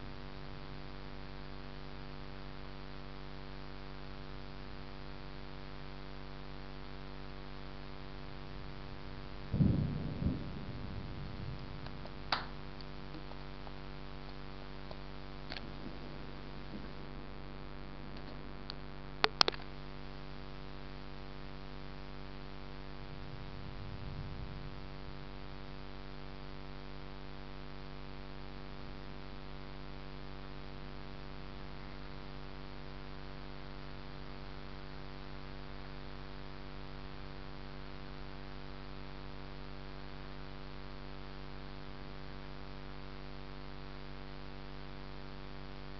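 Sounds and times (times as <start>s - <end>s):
steady hum: 0.0s - 45.9s
distant thunder rumble: 8.6s - 13.6s, 22.7s - 26.1s.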